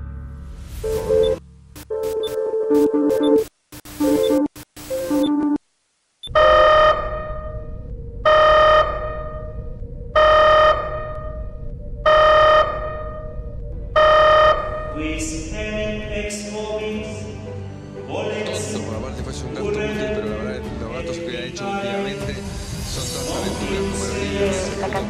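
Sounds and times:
glitchy static: 0.7s - 6.8s
electronic alarm tone: 0.8s - 5.6s, 6.2s - 15.0s
low rumbling drone: 6.4s - 16.4s.

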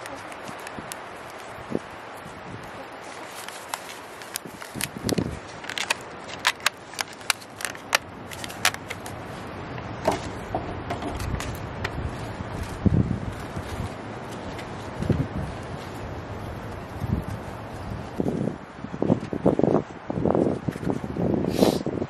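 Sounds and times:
plastic pot crackling and clicking: 0.0s - 1.6s, 3.2s - 9.2s.

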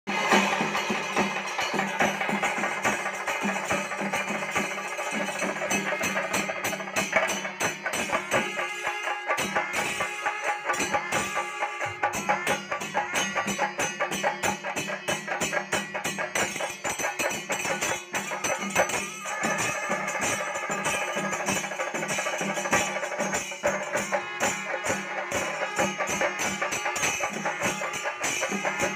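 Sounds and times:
drums beaten with sticks: 0.1s - 28.9s
hand cymbals clashing: 0.1s - 28.9s
wind instruments long notes: 23.6s - 28.9s.

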